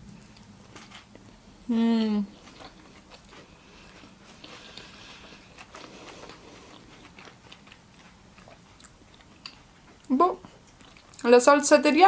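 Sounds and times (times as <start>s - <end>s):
chewing with wet mouth clicks: 2.4s - 11.3s.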